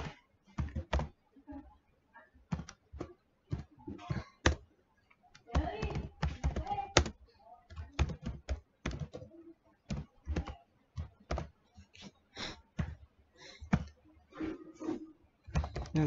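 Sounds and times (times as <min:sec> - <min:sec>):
computer keyboard keystrokes: 0:00.0 - 0:01.1, 0:02.5 - 0:04.6, 0:05.3 - 0:11.6, 0:15.5 - 0:16.0.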